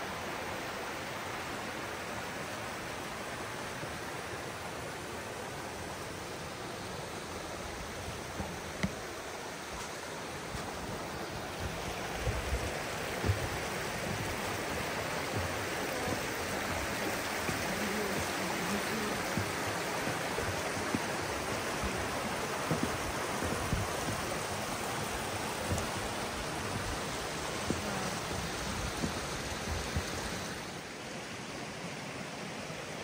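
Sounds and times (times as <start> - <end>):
brook rushing over rocks: 4.5 - 30.9
footsteps on wooden planks: 7.9 - 30.7.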